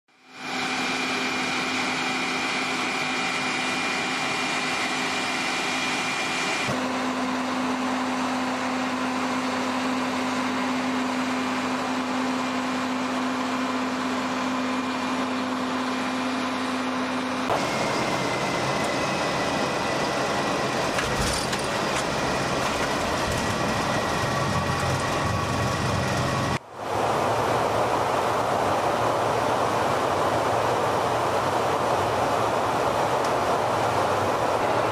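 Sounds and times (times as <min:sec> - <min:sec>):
jet aircraft whine and hum: 0:00.1 - 0:34.9
rush of air and engines: 0:00.1 - 0:34.9.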